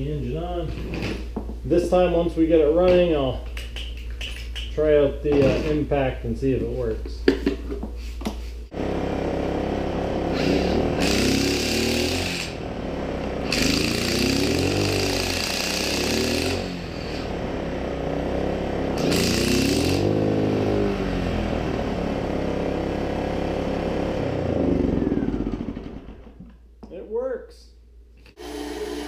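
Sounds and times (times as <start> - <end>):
electric impact wrench bursts: 8.7 - 21.2, 28.4 - 29.0
small generator running: 8.7 - 26.4, 28.4 - 29.0.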